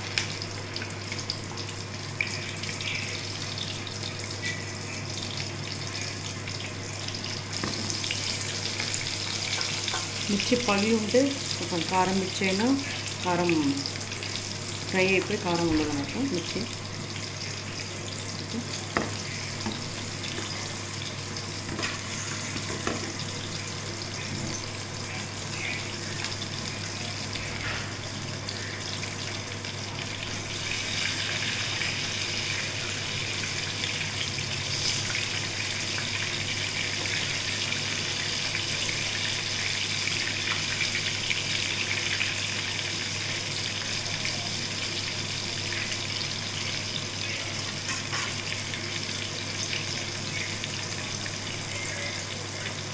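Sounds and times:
hot oil sizzling in a pan: 0.0s - 52.9s.

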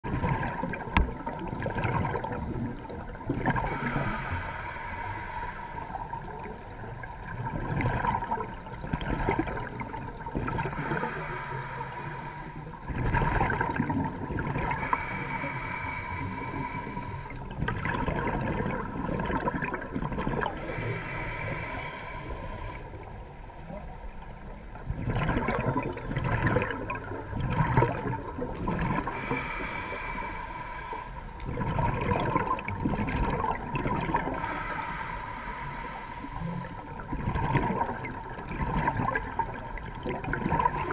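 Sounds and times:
exhaust bubbles gurgling: 0.0s - 40.9s
diver breathing through regulator: 1.0s - 6.6s, 10.2s - 12.9s, 14.6s - 17.6s, 20.4s - 23.1s, 29.0s - 31.6s, 34.2s - 37.1s, 40.6s - 40.9s.

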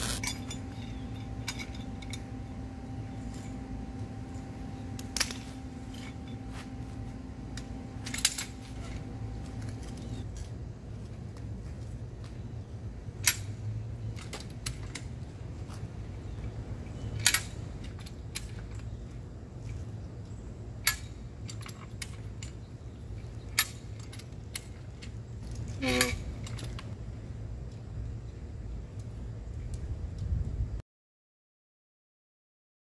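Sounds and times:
metal jack clacking: 0.0s - 2.5s, 7.6s - 10.2s, 17.1s - 18.9s
ringing metal clank: 0.0s - 6.9s.

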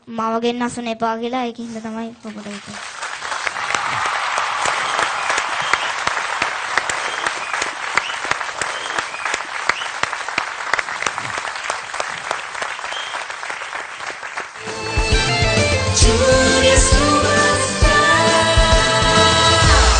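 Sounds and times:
audience applauding: 2.4s - 15.7s.

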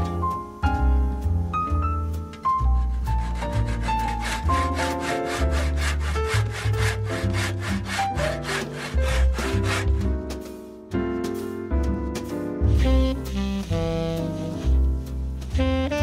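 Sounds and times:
jazz music: 0.0s - 16.0s
hand saw cutting wood: 2.7s - 10.5s.

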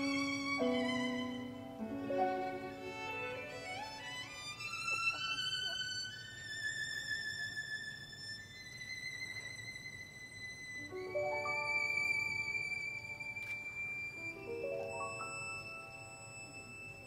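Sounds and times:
piano notes: 0.0s - 4.2s, 10.9s - 13.4s, 14.1s - 17.0s
violin holding high notes: 0.0s - 8.1s, 10.8s - 17.0s.

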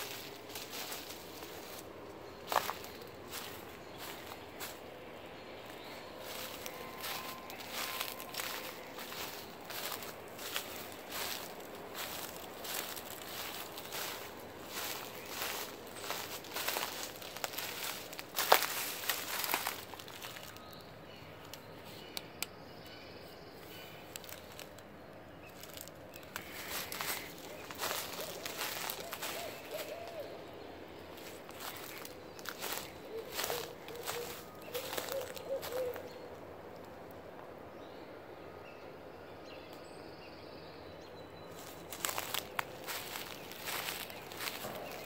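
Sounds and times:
footsteps crunching on dry leaves: 0.0s - 20.9s, 23.6s - 24.8s, 25.4s - 36.2s, 41.5s - 45.0s
faint high chirping: 0.0s - 36.0s.

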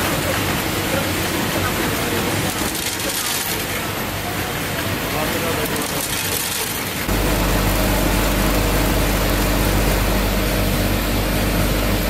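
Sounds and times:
low machine hum: 7.1s - 12.0s.

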